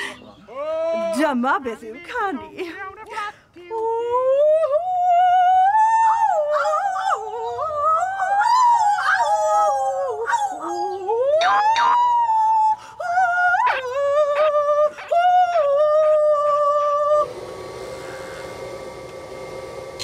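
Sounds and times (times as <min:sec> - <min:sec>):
woman singing operatically: 0:01.2 - 0:17.3.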